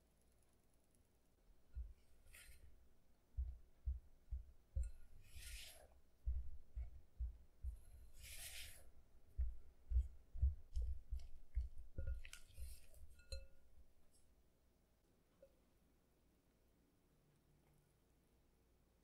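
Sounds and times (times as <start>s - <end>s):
spatula scraping rustles: 2.0s - 2.8s, 4.8s - 6.4s, 7.7s - 9.0s, 12.0s - 13.5s
spatula knocking in batter bowl: 3.4s - 5.3s, 6.3s - 7.9s, 9.3s - 13.9s.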